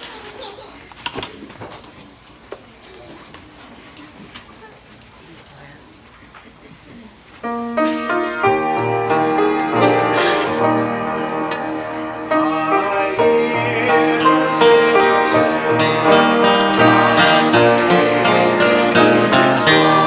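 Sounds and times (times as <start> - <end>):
instruments playing hymn tune: 7.3 - 20.0.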